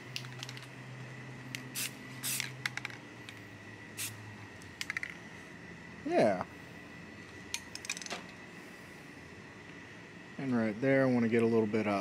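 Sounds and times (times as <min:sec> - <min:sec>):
spray paint can hissing: 0:01.5 - 0:03.0.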